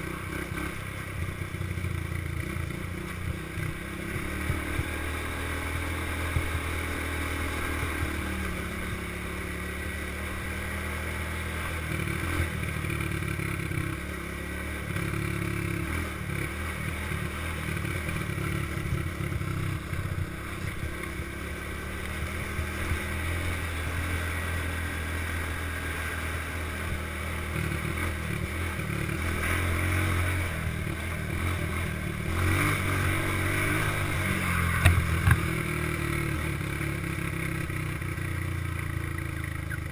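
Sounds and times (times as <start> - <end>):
small vehicle engine running: 0.0 - 39.9.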